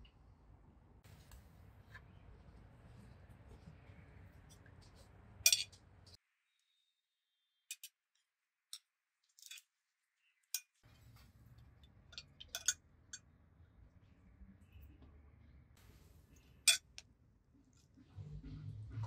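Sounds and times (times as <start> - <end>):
cutlery clinking on dishes: 5.5 - 5.8, 12.1 - 13.2, 16.7 - 16.9.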